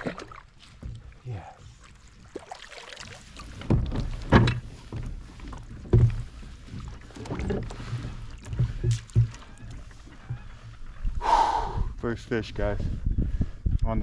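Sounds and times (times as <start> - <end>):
water splashing: 0.0 - 10.7.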